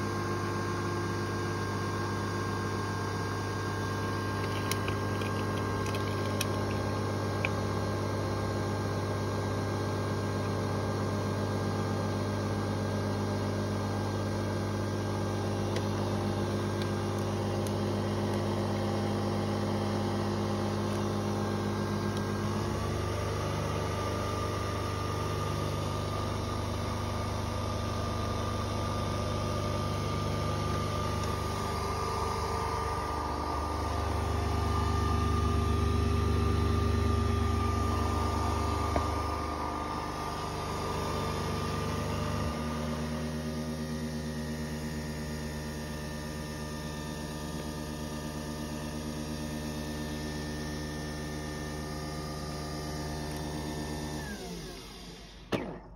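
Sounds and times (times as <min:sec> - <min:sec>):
coffee machine motor and pump hum: 0:00.0 - 0:55.8.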